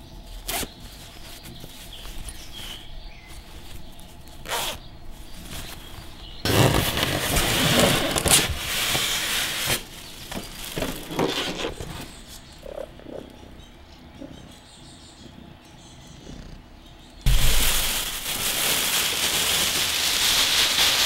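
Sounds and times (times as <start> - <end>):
plastic wrap rustling: 0.4 - 12.5, 17.3 - 21.0
foam scraping against cardboard: 5.4 - 12.3.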